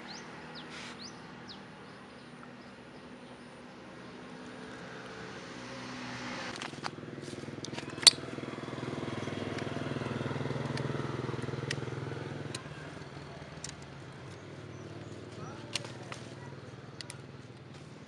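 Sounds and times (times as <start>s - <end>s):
motorcycle engine passing: 3.0s - 18.0s
sharp clicks: 13.5s - 14.4s.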